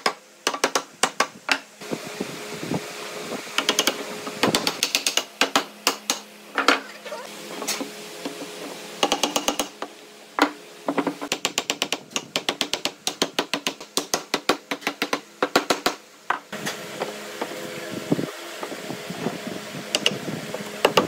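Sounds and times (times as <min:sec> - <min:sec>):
rapid wooden knocks: 0:11.3 - 0:16.0.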